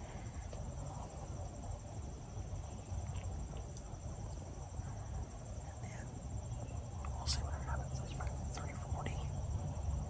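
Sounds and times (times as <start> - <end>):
insects trilling: 0.0 - 10.0.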